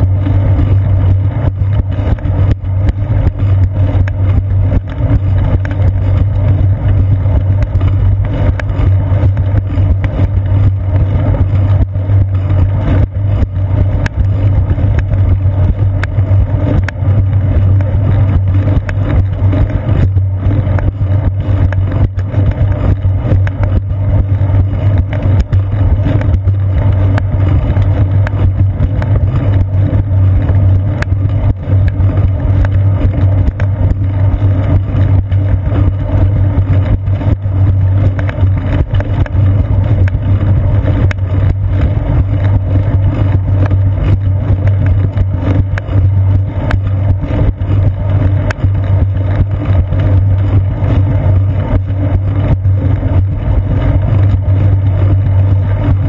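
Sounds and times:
bicycle rumbling on concrete path: 0:00.0 - 0:56.0.

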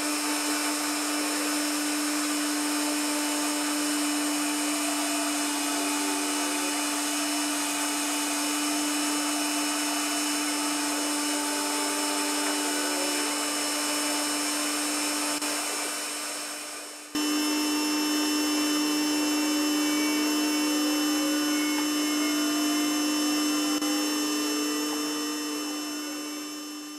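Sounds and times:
lathe turning: 0:00.0 - 0:26.9
stepper motor whines: 0:00.0 - 0:26.9
vacuum cleaner running: 0:00.0 - 0:26.9.

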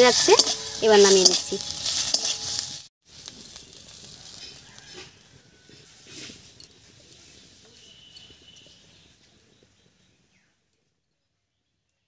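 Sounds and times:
spatula scraping metal pan: 0:00.0 - 0:02.9.

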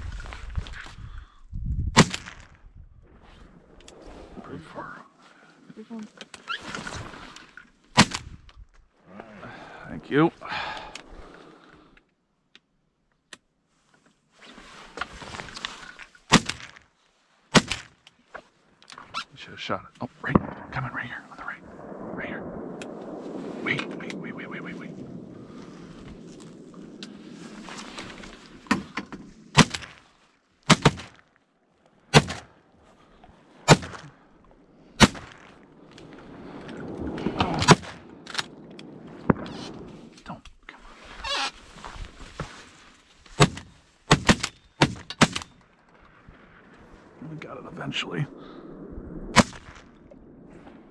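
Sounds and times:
shotgun shots with echo: 0:35.0 - 0:35.4, 0:49.3 - 0:49.8
soft rustling and handling: 0:40.1 - 0:44.0.

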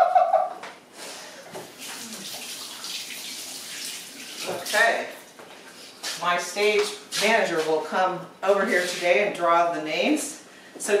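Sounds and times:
water running from faucet: 0:01.6 - 0:05.4
person speaking: 0:04.4 - 0:05.2, 0:06.1 - 0:11.0.

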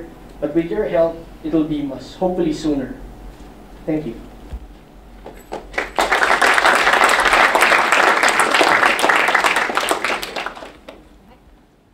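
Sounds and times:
audience applauding: 0:05.5 - 0:11.1.

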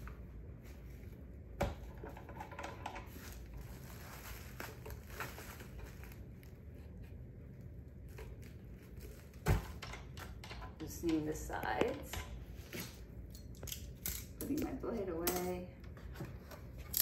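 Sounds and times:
plastic wrapping crinkling: 0:03.0 - 0:09.5.

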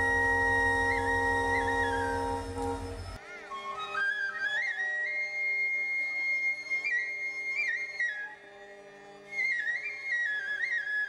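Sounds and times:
sustained low notes: 0:00.0 - 0:03.2
flute melody: 0:00.0 - 0:08.4, 0:09.4 - 0:11.0.

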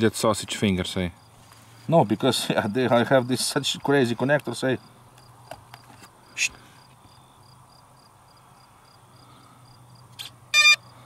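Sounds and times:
crickets chirping: 0:00.0 - 0:11.0
electronic beep from motor: 0:10.2 - 0:10.8.

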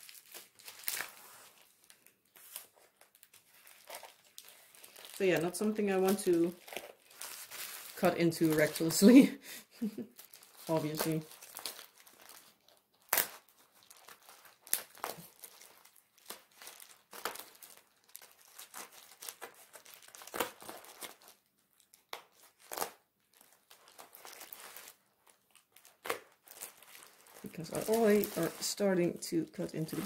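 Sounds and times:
plastic crinkling: 0:00.0 - 0:30.0.

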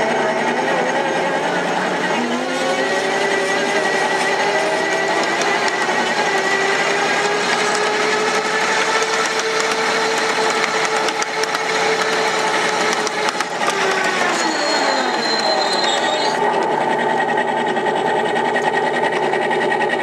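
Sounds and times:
locomotive engine whine: 0:00.0 - 0:20.0
wheels clicking on track: 0:00.0 - 0:20.0.

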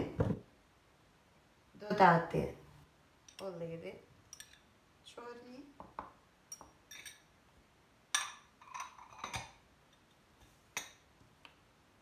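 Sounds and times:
glass and ceramic dishes clinking: 0:04.3 - 0:04.6, 0:06.5 - 0:07.3, 0:08.1 - 0:09.6.

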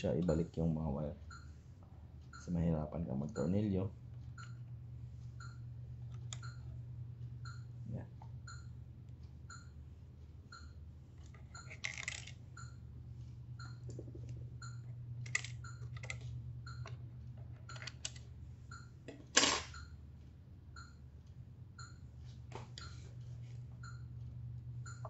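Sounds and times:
faint regular ticking: 0:00.0 - 0:19.2, 0:19.8 - 0:25.0
steady low hum: 0:00.0 - 0:25.0
small plastic parts clicking and rattling: 0:11.2 - 0:12.4, 0:15.2 - 0:16.3.

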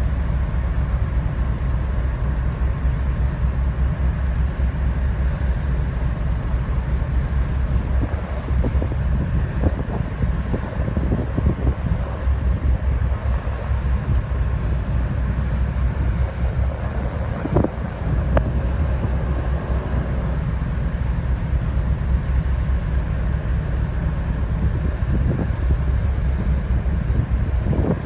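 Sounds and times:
propellers churning water: 0:00.0 - 0:28.0
ship engines rumbling: 0:00.0 - 0:28.0
wind buffeting microphone: 0:05.9 - 0:28.0.

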